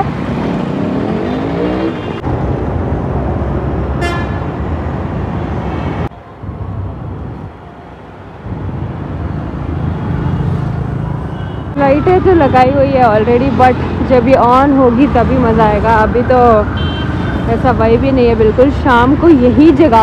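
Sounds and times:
traffic engines rumbling: 0.0s - 20.0s
car horn toot: 4.0s - 4.4s.

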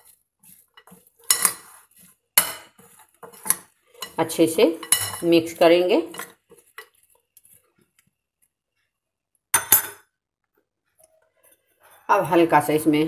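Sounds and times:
faint stirring scrapes: 0.0s - 9.0s, 10.8s - 12.1s.

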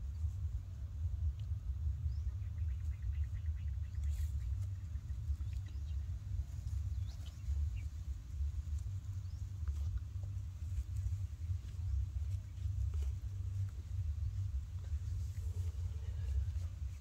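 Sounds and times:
steady low rumble: 0.0s - 17.0s
faint bird chirps: 2.0s - 8.0s.

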